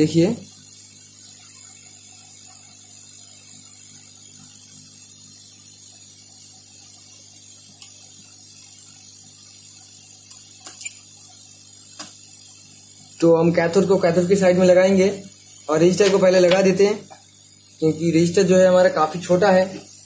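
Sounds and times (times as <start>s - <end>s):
electrical hum with high whine: 0.0s - 20.0s
faint probe ticks: 7.7s - 8.0s, 9.8s - 12.2s, 15.9s - 17.3s.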